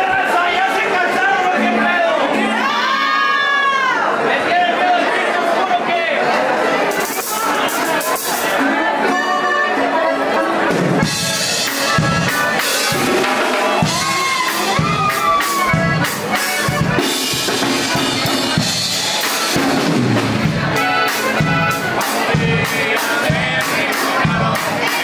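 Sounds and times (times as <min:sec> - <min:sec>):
string instrument: 0:00.0 - 0:25.0
button accordion melody: 0:01.3 - 0:03.3, 0:08.6 - 0:25.0
drum kit beat: 0:10.6 - 0:25.0.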